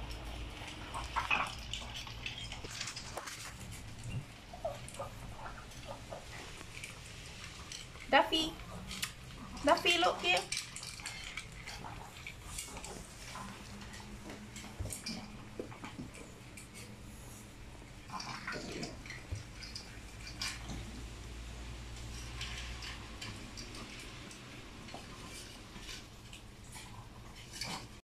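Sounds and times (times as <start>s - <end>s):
dogs crunching dry food: 0.0s - 28.0s
metal bowls clinking on tile: 6.8s - 17.0s.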